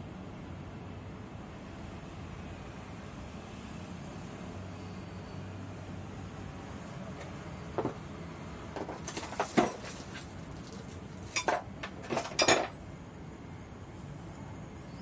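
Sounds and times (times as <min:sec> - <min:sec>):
metal parts clinking on plastic case: 0:08.8 - 0:12.8.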